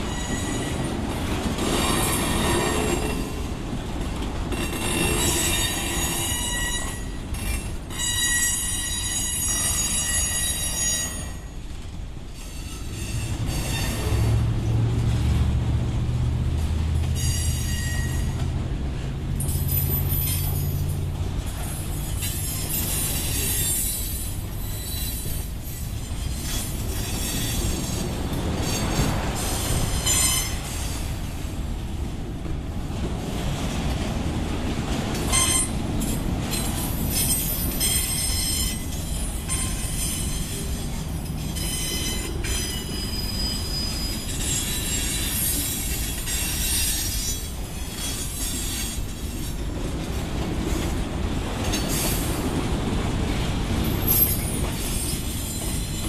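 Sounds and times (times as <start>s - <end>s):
high-pitched wheel squeals: 0.0s - 0.8s, 4.7s - 11.6s, 12.4s - 14.4s, 17.1s - 18.5s, 21.9s - 28.0s, 29.9s - 30.7s, 35.3s - 35.7s, 36.6s - 49.0s
train wheels rumbling on rail: 0.0s - 56.0s.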